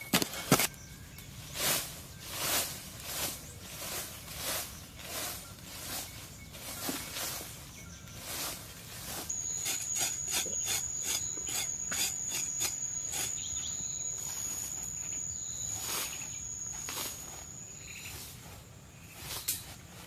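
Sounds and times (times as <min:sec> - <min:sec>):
stick scraping dry soil: 0:00.0 - 0:20.0
insect buzzing: 0:09.1 - 0:18.4.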